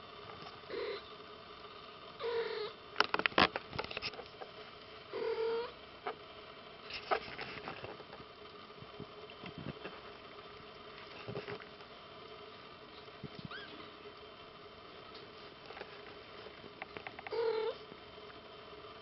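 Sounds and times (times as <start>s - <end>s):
kitten mewing: 2.2s - 2.8s, 13.4s - 13.9s, 17.3s - 17.8s.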